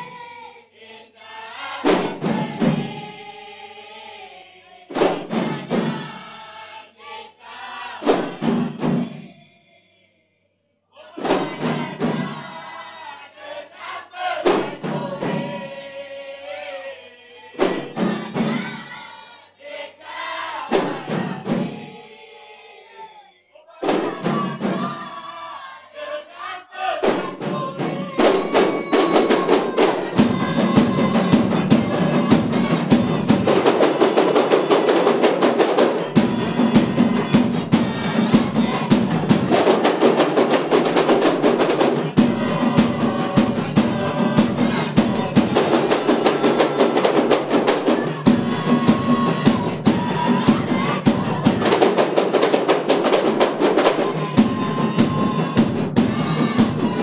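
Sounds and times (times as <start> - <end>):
group of voices chanting: 0.0 - 10.2, 10.9 - 57.0
hand drums struck in fast rhythm: 1.8 - 3.2, 4.9 - 6.2, 8.0 - 9.2, 11.2 - 12.6, 14.4 - 15.7, 17.6 - 19.0, 20.7 - 21.9, 23.8 - 57.0.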